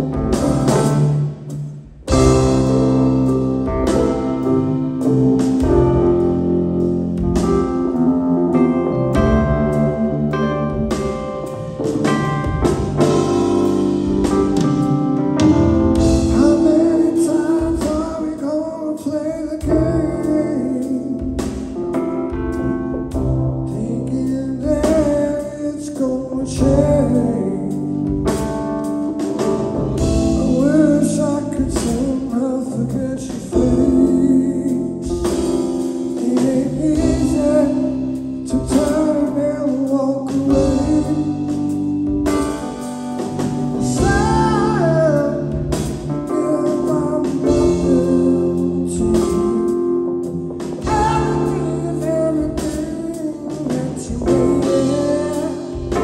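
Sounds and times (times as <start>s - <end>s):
live rock band playing: 0.0s - 56.0s
person singing lead vocal: 8.8s - 11.7s, 16.0s - 21.7s, 23.5s - 28.4s, 30.0s - 42.5s, 43.7s - 56.0s.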